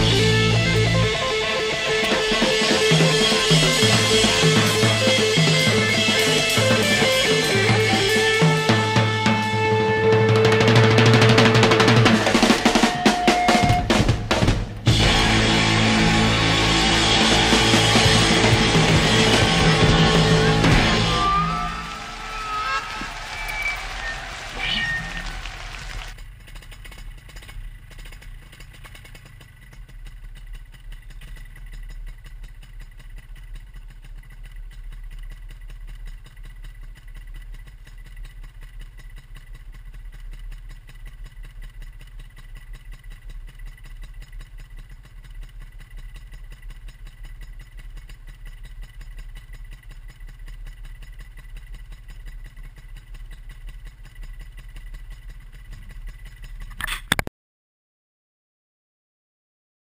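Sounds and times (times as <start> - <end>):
loud engine burst: 0.0 - 26.2
two-stroke engine idling: 0.0 - 57.3.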